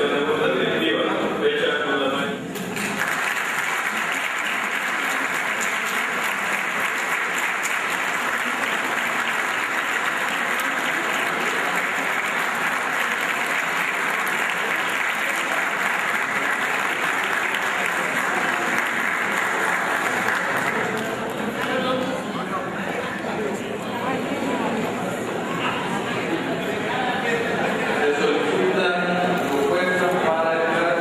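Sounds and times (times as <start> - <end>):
crowd applauding: 2.6 - 22.0.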